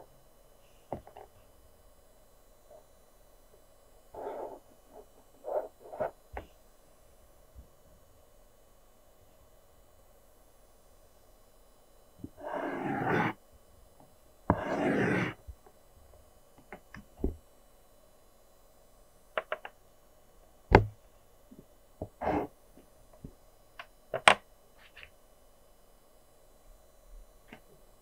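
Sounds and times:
pencil strokes on paper: 0:04.2 - 0:06.1, 0:12.3 - 0:13.4, 0:14.5 - 0:15.4, 0:22.2 - 0:22.5.

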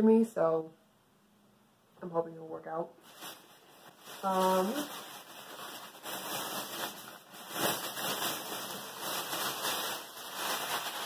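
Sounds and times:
clothing rustling: 0:03.0 - 0:11.0.

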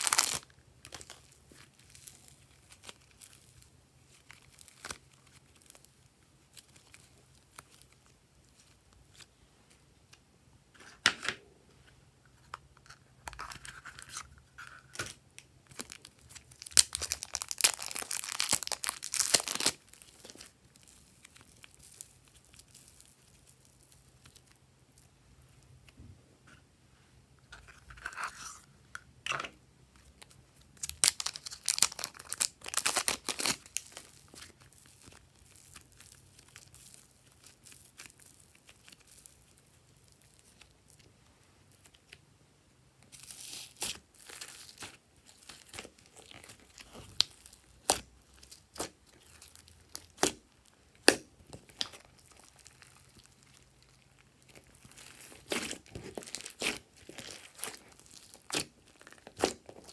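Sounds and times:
slime squishing and popping: 0:00.0 - 0:03.4, 0:43.2 - 0:59.9.

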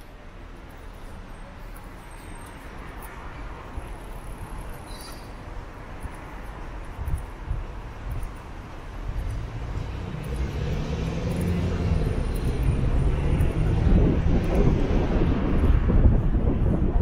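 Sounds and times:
vehicle engine approaching: 0:09.0 - 0:17.0.

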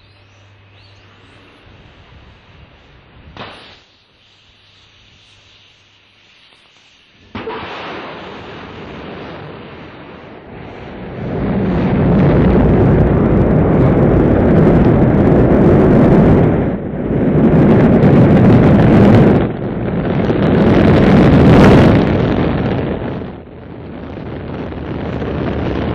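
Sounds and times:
rocket engine roar: 0:07.2 - 0:25.9.

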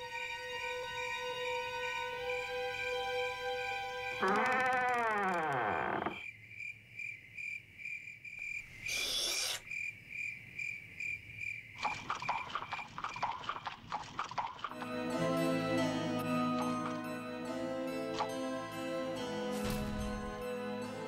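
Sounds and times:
crickets chirping: 0:04.3 - 0:13.2.

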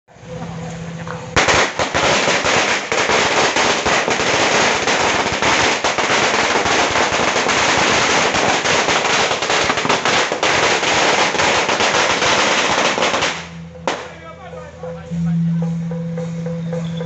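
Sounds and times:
firecrackers crackling: 0:00.2 - 0:16.8
steady low hum: 0:13.4 - 0:17.0.

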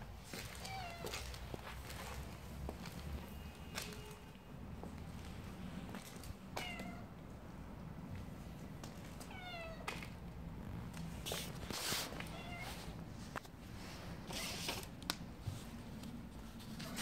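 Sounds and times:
cat meowing: 0:00.5 - 0:01.3, 0:06.6 - 0:07.2, 0:09.2 - 0:10.0, 0:12.2 - 0:13.0
brief scuffing noises: 0:11.3 - 0:13.5.

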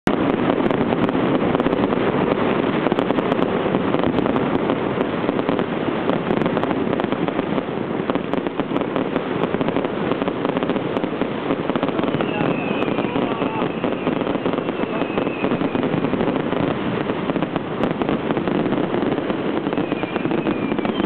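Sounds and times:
fireworks crackling and popping: 0:00.0 - 0:21.0.

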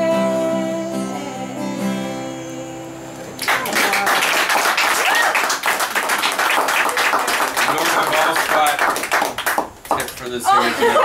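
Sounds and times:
woman singing: 0:00.0 - 0:02.9
acoustic guitar strumming: 0:00.0 - 0:04.0
audience clapping: 0:03.4 - 0:10.5.

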